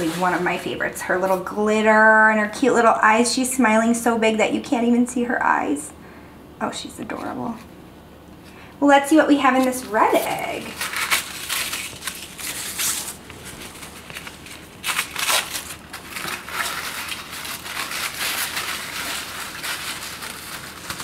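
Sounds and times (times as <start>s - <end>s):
crepe paper rustling and crinkling: 0.0s - 1.6s, 9.5s - 21.0s.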